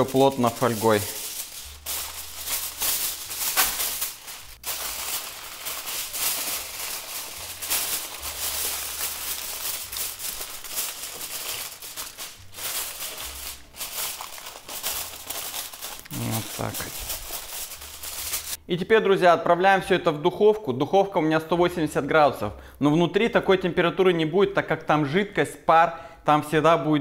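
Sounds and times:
aluminium foil crinkling: 0.0s - 18.6s.

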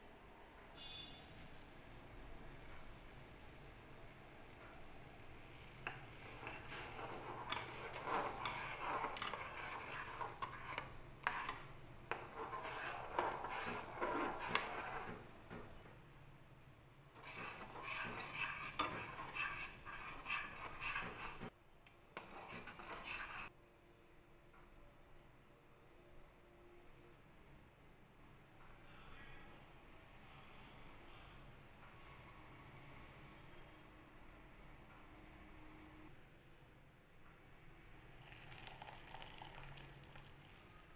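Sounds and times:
metal spoon stirring in saucepan: 5.4s - 15.7s, 17.2s - 21.5s, 22.2s - 23.5s.

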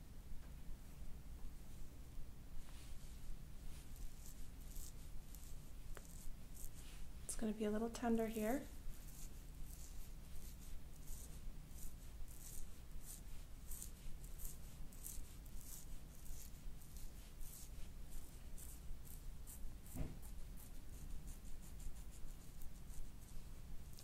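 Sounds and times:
fingers rubbing through hair: 2.6s - 24.0s.

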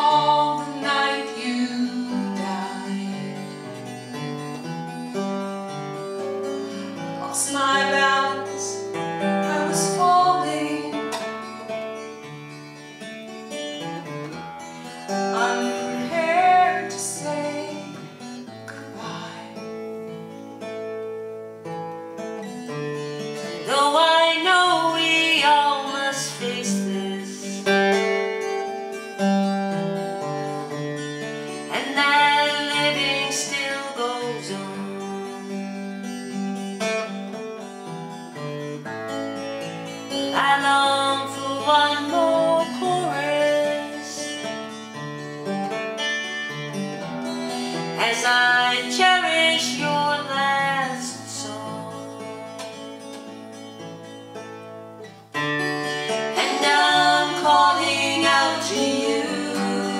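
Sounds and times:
woman singing: 0.0s - 3.8s, 7.2s - 11.6s, 15.1s - 19.9s, 23.4s - 28.2s, 31.5s - 35.8s, 40.1s - 44.5s, 47.9s - 52.8s, 56.3s - 59.9s
acoustic guitar: 0.0s - 59.9s.

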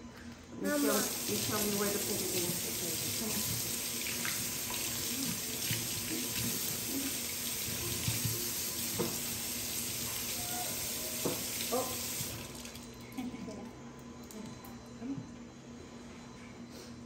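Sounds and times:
tap water running into sink: 0.7s - 13.0s.

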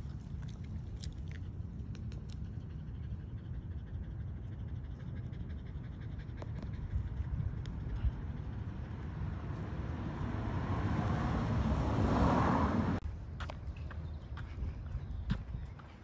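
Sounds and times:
low street rumble: 0.0s - 16.0s
passing car engine and tyres: 7.4s - 14.2s.

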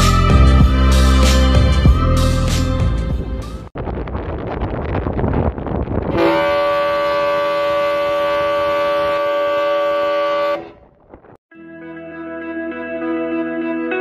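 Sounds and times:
ship's whistle blast: 6.2s - 10.8s.

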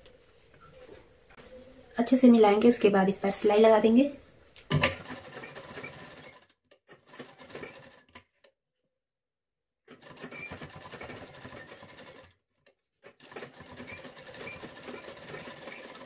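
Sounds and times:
sewing machine stitching: 4.7s - 8.3s, 9.9s - 12.4s, 13.0s - 16.0s.

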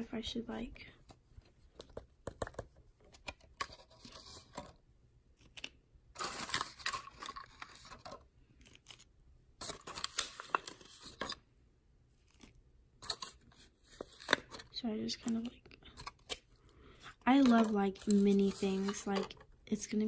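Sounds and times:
plastic packaging crinkling: 5.4s - 11.4s, 17.2s - 19.4s.

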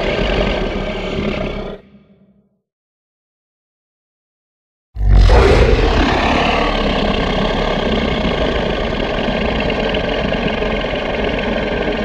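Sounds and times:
deep dinosaur roar: 5.0s - 11.5s.

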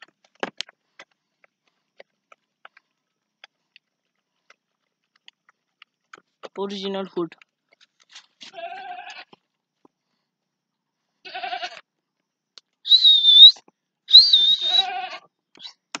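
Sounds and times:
goat kids bleating: 8.5s - 9.4s, 11.2s - 11.8s, 14.6s - 15.3s.

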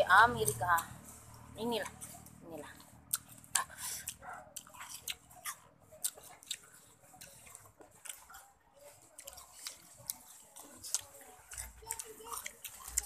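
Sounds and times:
person chewing: 0.5s - 13.0s
wet eating clicks and smacks: 0.5s - 13.0s.

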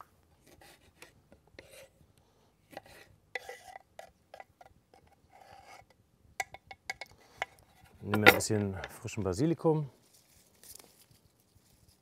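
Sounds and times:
tomato scraped into bowl: 0.4s - 2.0s, 2.7s - 4.4s.

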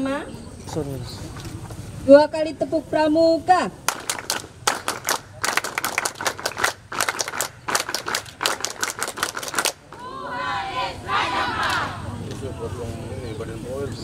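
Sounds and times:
crowd clapping in unison: 3.8s - 10.0s
crowd shouting together: 10.0s - 12.2s.

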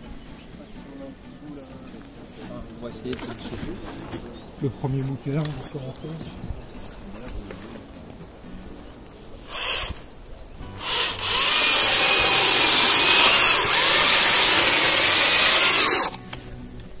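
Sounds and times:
chainsaw cutting branch: 9.4s - 10.1s, 10.7s - 16.2s.

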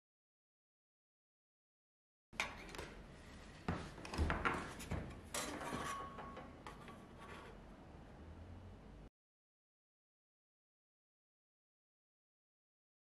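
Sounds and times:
metal tools sliding on wood: 5.3s - 7.6s.

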